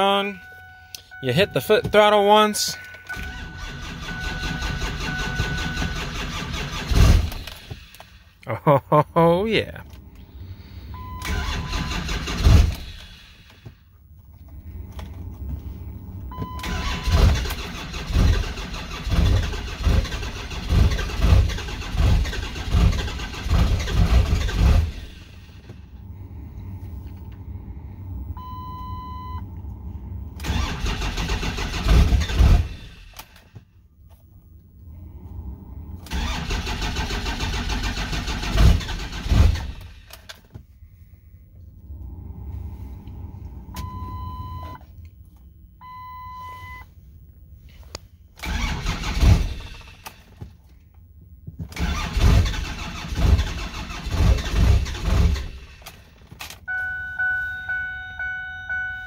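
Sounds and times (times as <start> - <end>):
electronic warning chime: 0.0 - 5.9, 56.7 - 59.0
diesel engine cranking: 0.0 - 8.5, 9.7 - 45.5, 47.8 - 56.7.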